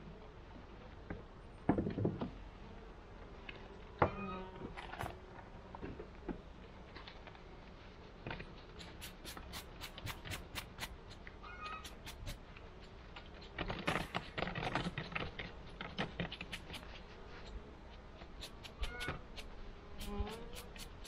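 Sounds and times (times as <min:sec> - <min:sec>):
wooden hive frames creaking: 0:13.2 - 0:16.9.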